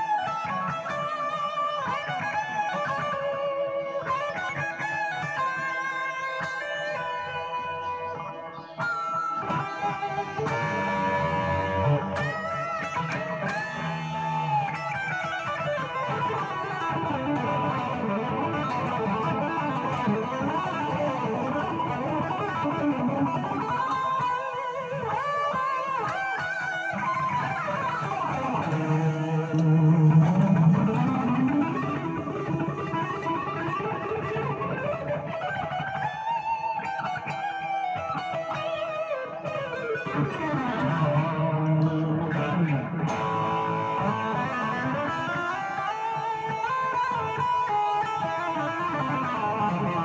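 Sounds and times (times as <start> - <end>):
electric guitar lead lines: 0.0 - 50.0.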